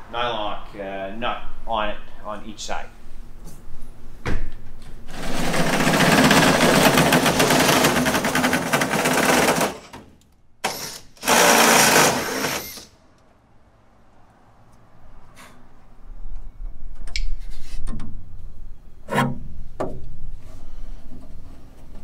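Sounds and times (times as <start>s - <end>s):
shop vacuum rushing: 5.1s - 9.9s, 10.7s - 12.9s.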